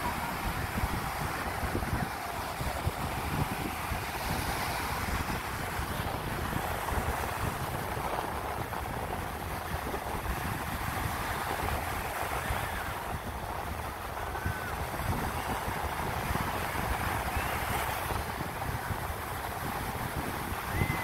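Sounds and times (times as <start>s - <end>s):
waves breaking on sand: 0.0s - 21.0s
wind buffeting microphone: 0.0s - 21.0s.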